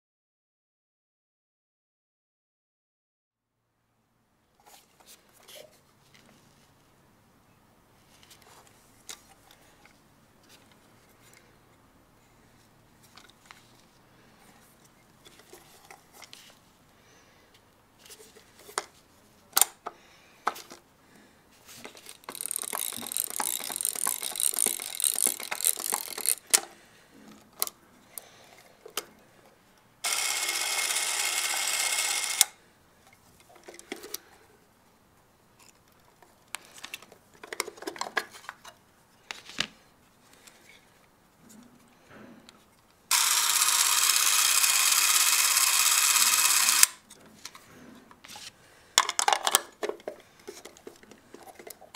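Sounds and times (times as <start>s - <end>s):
clockwork camera whirr: 22.0s - 26.6s, 30.0s - 32.6s, 43.1s - 47.0s
small mechanism clicks: 22.0s - 26.6s, 30.0s - 32.6s, 43.1s - 47.0s
winding key ratcheting: 22.0s - 26.6s, 30.1s - 32.5s, 43.1s - 47.0s.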